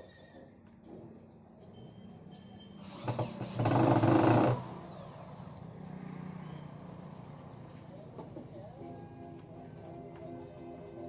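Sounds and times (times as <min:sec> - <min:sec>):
electric drill driving a screw: 0:02.8 - 0:05.3.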